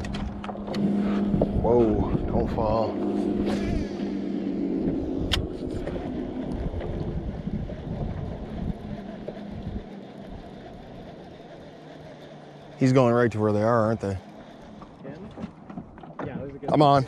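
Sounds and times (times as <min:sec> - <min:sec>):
wind buffeting microphone: 0:00.0 - 0:12.0
boat motor humming: 0:00.0 - 0:17.0.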